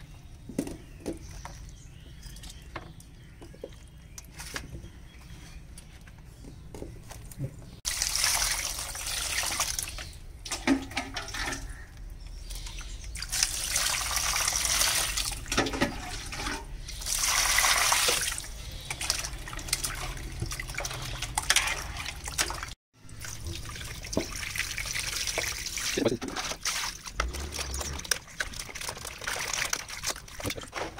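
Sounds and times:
water splashing in a metal basin: 7.8s - 30.9s.

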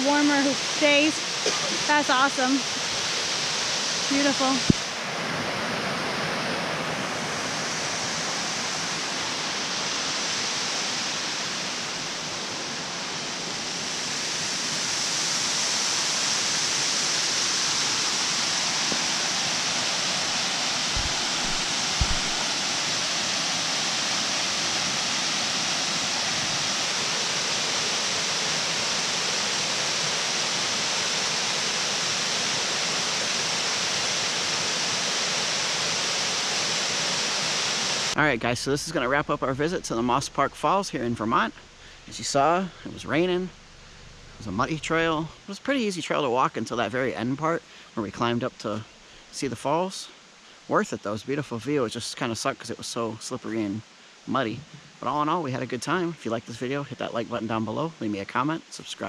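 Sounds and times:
waterfall rushing: 0.0s - 59.0s
low thumps: 20.9s - 22.6s.

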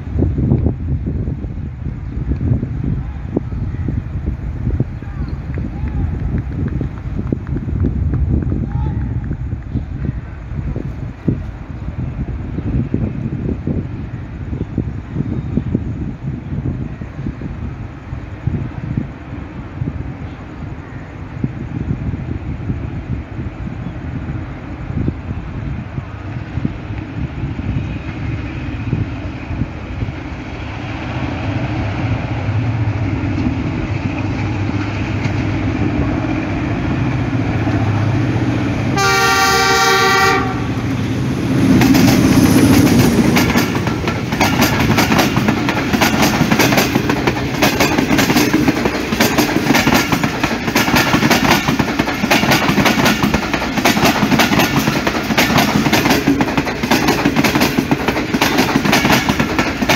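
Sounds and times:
diesel locomotive engine rumble: 0.0s - 59.9s
train wheels clickety-clack: 5.4s - 10.2s, 32.8s - 38.2s, 41.5s - 59.9s
train horn blast: 38.8s - 41.1s.

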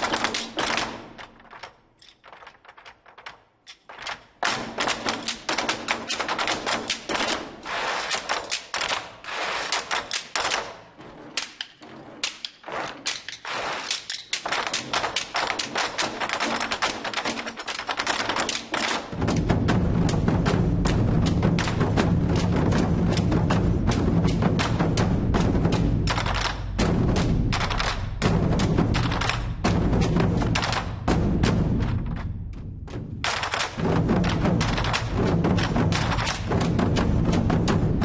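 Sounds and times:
barrel drums struck with sticks: 18.5s - 38.0s.

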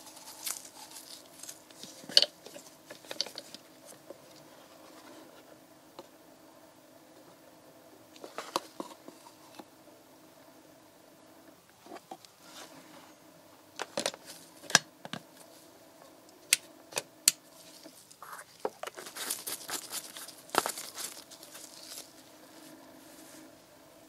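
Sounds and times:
plastic rustling and crinkling: 0.0s - 5.5s, 13.8s - 15.6s, 17.4s - 23.5s
faint steady hum: 0.0s - 24.0s.

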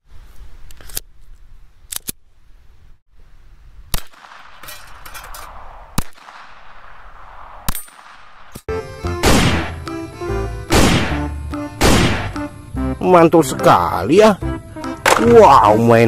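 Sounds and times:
pistol shots: 3.9s - 8.6s, 9.2s - 9.8s, 10.7s - 12.4s.

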